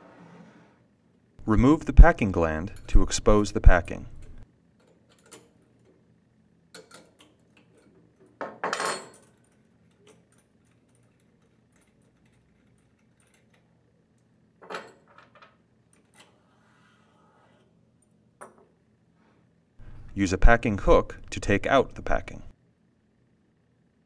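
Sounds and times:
wrench and nuts clinking on metal: 2.2 - 5.5, 6.8 - 13.7.

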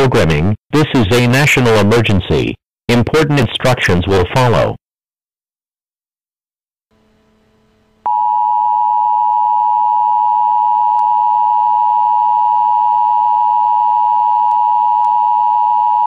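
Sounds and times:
loud steady electronic tone: 8.0 - 16.0.

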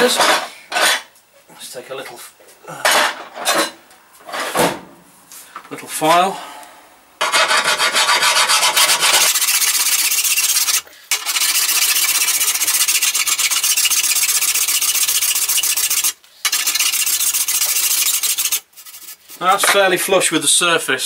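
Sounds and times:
file rasping across metal: 7.2 - 19.6.

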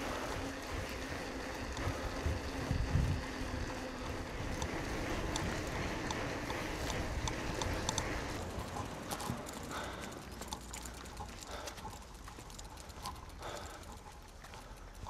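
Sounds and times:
bicycle tyres on gravel: 0.0 - 15.0
small ticks: 0.2 - 15.0
wind on microphone: 1.7 - 6.1.

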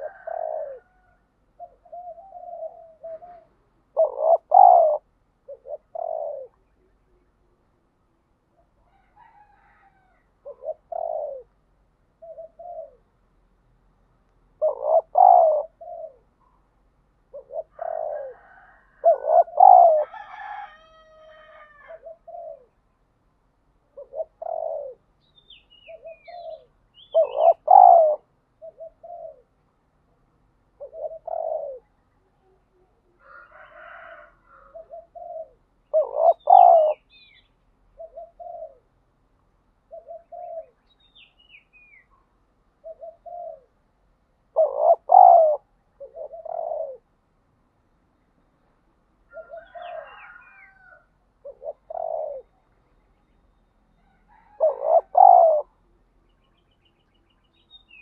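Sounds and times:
dove cooing: 0.0 - 7.7, 8.5 - 11.6, 12.2 - 13.1, 14.5 - 16.6, 17.3 - 22.8, 23.9 - 25.1, 25.8 - 29.6, 30.8 - 39.0, 39.8 - 40.8, 42.8 - 43.8, 44.5 - 47.1, 49.3 - 52.6, 54.1 - 56.0
small bird chirping faintly: 47.9 - 58.0.

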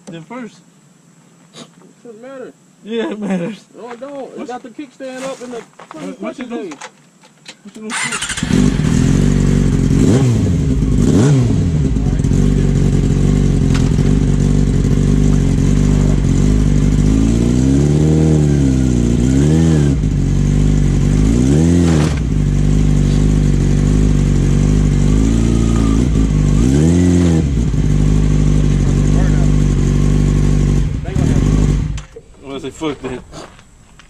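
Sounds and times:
motorcycle engine idling and revving: 7.9 - 32.9.

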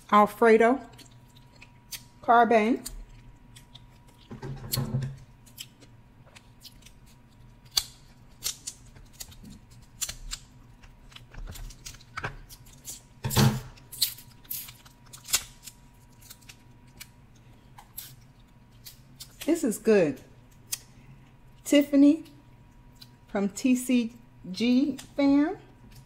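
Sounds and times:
scissors cracking crab shell: 2.8 - 4.3, 5.4 - 13.1, 13.8 - 17.2.

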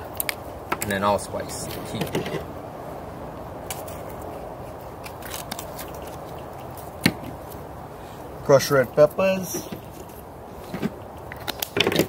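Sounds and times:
steady background noise: 0.0 - 12.0.

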